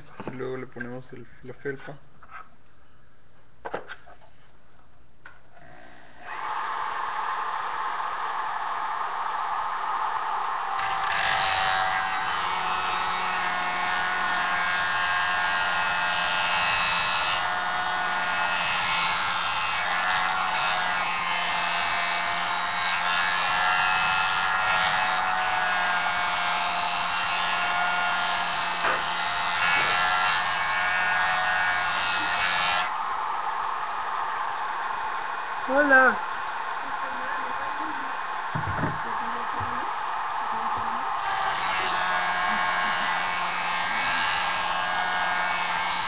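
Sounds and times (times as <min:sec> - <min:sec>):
motor whine: 0:28.8 - 0:45.6.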